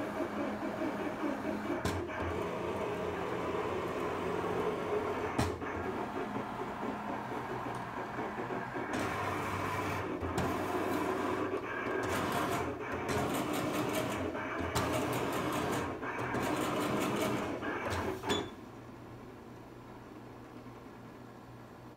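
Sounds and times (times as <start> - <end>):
plotter motors whirring: 0.0 - 18.6
steady machine hum: 0.0 - 21.9.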